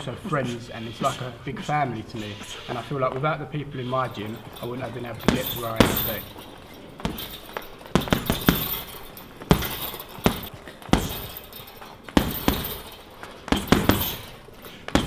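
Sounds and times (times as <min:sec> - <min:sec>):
punches thudding on heavy bag: 0:04.4 - 0:15.0.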